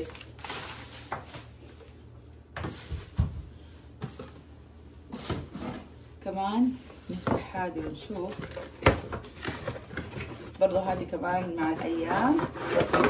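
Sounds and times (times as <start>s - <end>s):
cardboard packaging rustling: 0.0s - 1.6s, 8.2s - 11.0s.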